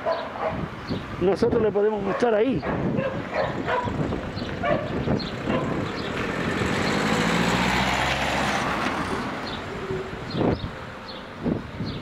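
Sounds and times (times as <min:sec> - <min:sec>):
vehicle driving past: 0:04.8 - 0:11.2.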